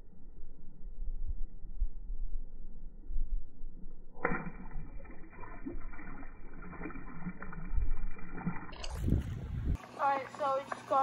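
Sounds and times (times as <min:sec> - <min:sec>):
low rumble: 0:00.0 - 0:09.8
water sloshing around dock: 0:04.2 - 0:11.0.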